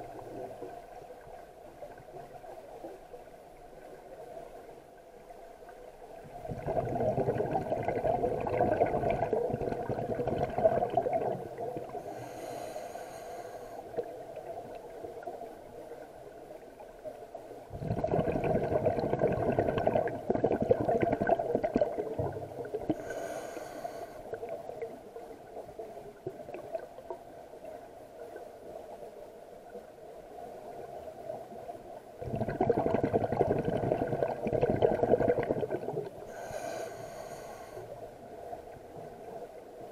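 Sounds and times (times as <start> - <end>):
exhaled bubbles underwater: 6.1 - 12.6, 17.7 - 28.4, 32.2 - 37.8
regulator inhalation hiss: 12.0 - 13.9, 22.9 - 24.4, 36.3 - 38.0.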